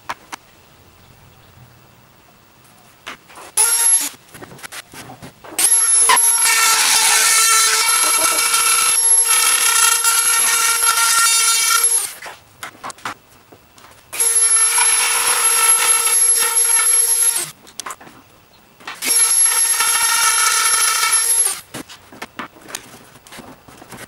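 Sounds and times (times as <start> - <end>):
rotary tool grinding whine: 3.6 - 4.2, 5.6 - 12.3, 14.1 - 17.6, 19.0 - 21.7.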